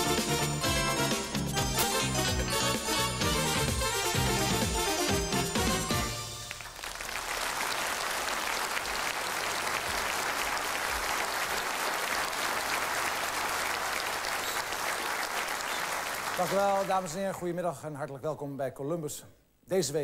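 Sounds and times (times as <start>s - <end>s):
tv theme music: 0.0s - 7.0s
studio audience applauding: 6.1s - 17.4s.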